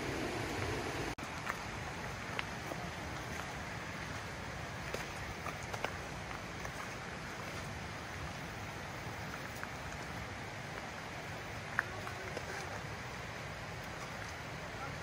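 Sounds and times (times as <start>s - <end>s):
footsteps on rocky trail: 1.2s - 12.8s.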